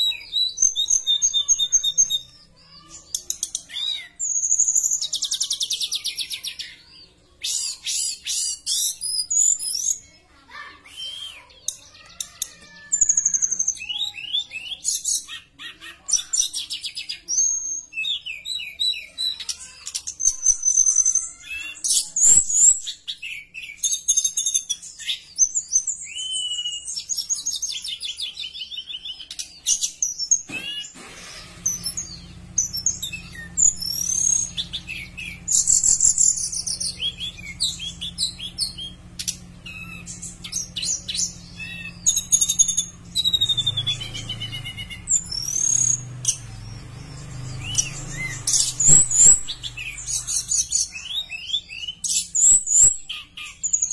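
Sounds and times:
bird singing whistled notes: 10.8s - 11.8s, 20.3s - 27.5s.

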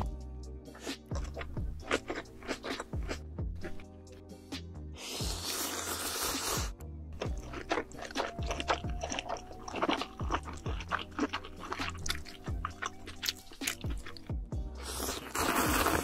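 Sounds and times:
background music with beat: 0.0s - 5.4s, 6.3s - 16.0s
noodle slurp: 5.0s - 6.8s, 7.4s - 14.2s, 14.8s - 16.0s.

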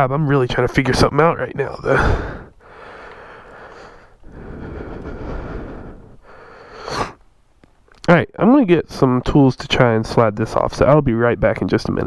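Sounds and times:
man breathing heavily: 1.9s - 7.2s.

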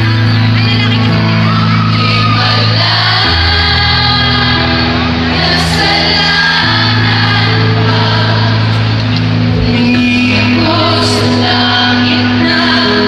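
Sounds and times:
keyboard: 0.0s - 13.0s
electric guitars: 3.4s - 13.0s
person singing: 9.5s - 13.0s.

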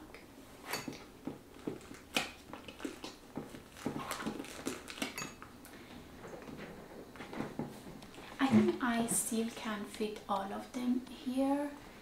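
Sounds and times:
bag rustling: 1.7s - 5.2s.

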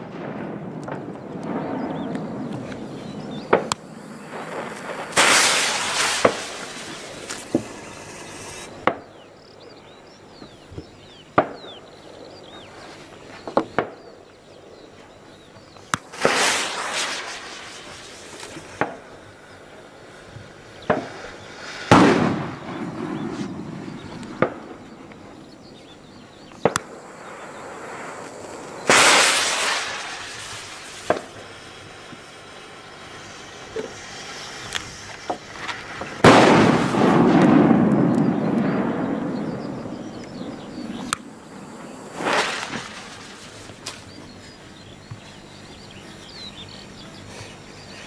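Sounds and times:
firecracker bangs: 0.0s - 9.2s, 15.9s - 19.1s, 20.8s - 24.9s, 26.6s - 44.3s
hissing crackle: 0.0s - 48.0s.

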